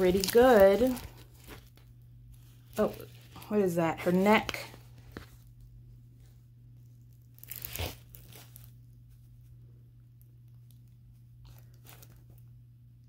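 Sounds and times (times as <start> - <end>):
canvas crinkling rustle: 0.0 - 5.5, 7.2 - 9.2, 11.4 - 12.4
faint low hum: 0.0 - 13.0.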